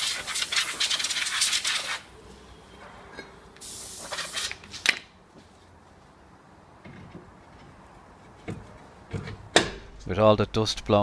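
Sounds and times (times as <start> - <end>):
compressed-air blow gun hissing: 3.6 - 4.6.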